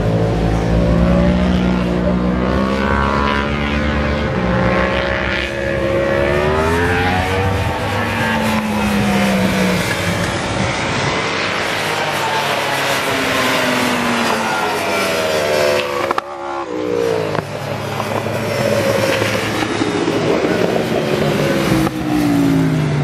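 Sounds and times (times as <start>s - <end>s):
motorcycle engines accelerating: 0.0s - 23.0s.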